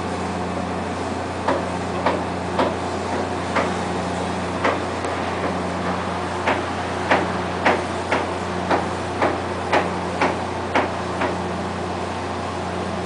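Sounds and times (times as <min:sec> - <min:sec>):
boat engine humming: 0:00.0 - 0:13.0
sharp knocking: 0:06.4 - 0:11.4.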